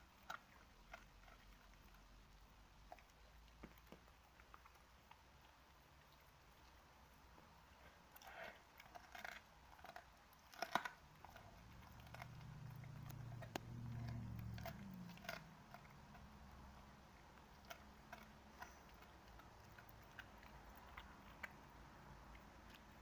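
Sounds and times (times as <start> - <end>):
dogs crunching bites: 0.0 - 6.8, 8.1 - 23.0
low hum: 11.3 - 22.4.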